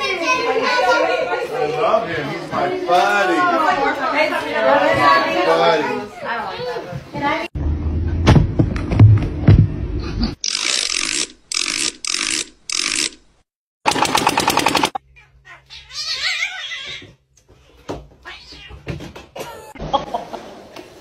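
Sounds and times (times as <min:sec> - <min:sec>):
rapid rattling: 0:13.8 - 0:15.0
cat meowing: 0:15.1 - 0:17.2, 0:18.2 - 0:18.9.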